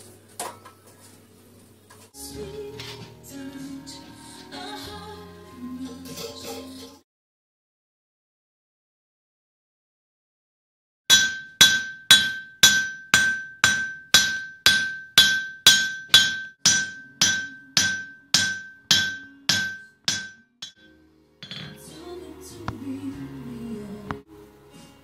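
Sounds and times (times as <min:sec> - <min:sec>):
steel rod tapping ringing anvil: 0:11.1 - 0:21.9.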